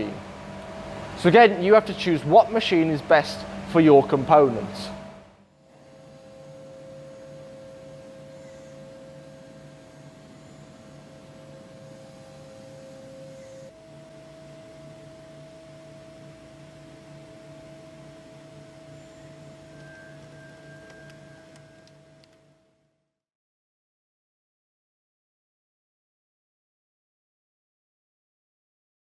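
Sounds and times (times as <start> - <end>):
lathe whine: 0.0 - 22.7
low pulsing hum: 0.0 - 22.9.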